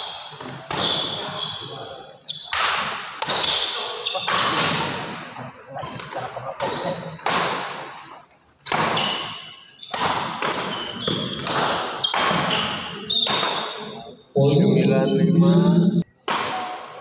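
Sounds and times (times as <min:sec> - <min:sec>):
shoes squeaking on wooden court: 0:00.0 - 0:02.6, 0:03.2 - 0:07.2, 0:08.6 - 0:14.1
racket hitting shuttlecock: 0:02.5 - 0:05.1, 0:08.7 - 0:13.8.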